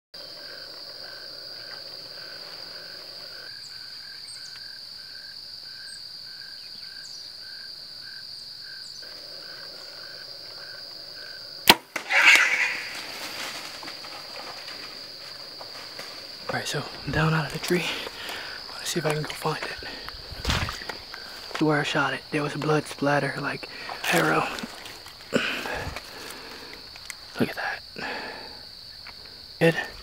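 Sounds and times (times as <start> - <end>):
high insect drone: 0.2 - 30.0
insect chirp: 0.2 - 30.0
arrow striking animal: 11.6 - 13.9
bow release crack: 11.6 - 14.9, 20.3 - 21.6.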